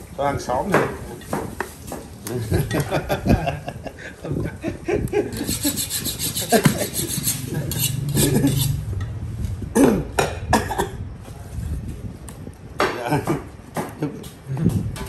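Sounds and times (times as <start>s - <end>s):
knife scraping meat off ribs: 5.3s - 8.8s.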